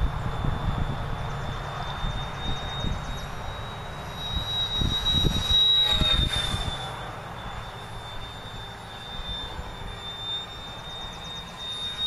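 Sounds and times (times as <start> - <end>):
wind rumble on microphone: 0.0 - 7.0
model airplane motor whine: 0.0 - 12.0.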